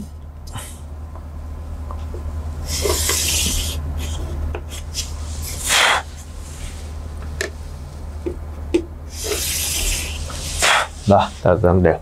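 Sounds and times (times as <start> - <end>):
steady low hum: 0.0 - 12.0
chalk scraping on a chalkboard: 9.2 - 11.6.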